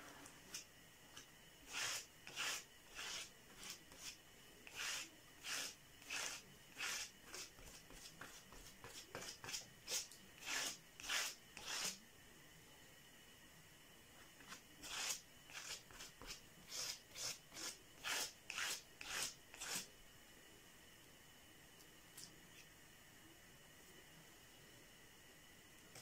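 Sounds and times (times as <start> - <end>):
spatula scraping putty: 1.7 - 12.0, 14.4 - 19.9.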